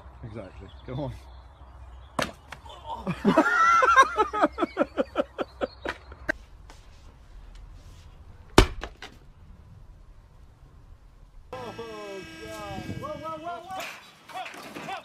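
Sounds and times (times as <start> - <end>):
person laughing hard: 2.7 - 5.7.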